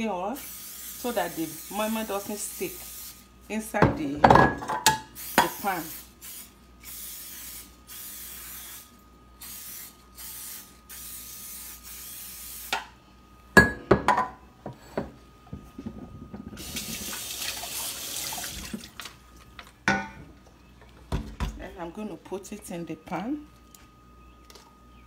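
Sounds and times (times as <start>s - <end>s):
aerosol spray hissing: 0.4s - 3.2s, 5.2s - 12.7s
kitchen tap running: 16.5s - 19.2s.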